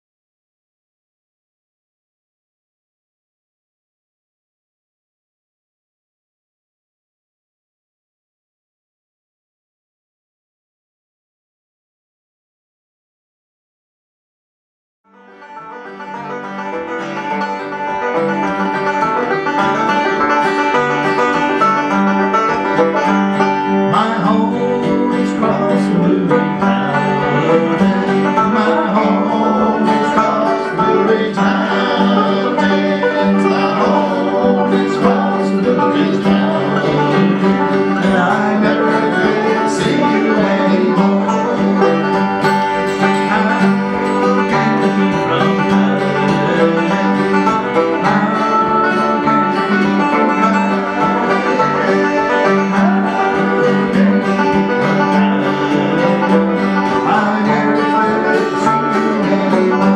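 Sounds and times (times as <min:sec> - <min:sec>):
banjo and acoustic guitar tune: 0:15.1 - 0:59.9.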